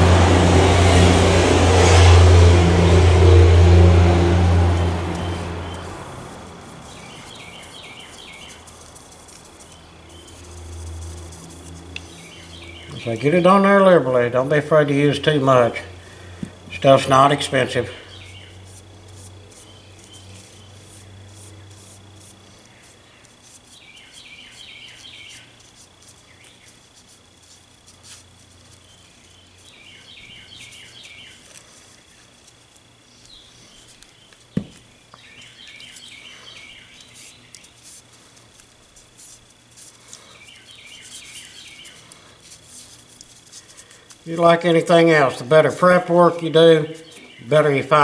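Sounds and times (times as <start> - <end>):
faint rubbing and ticking: 2.7 - 13.8, 16.4 - 48.0
high chirps: 4.2 - 13.6.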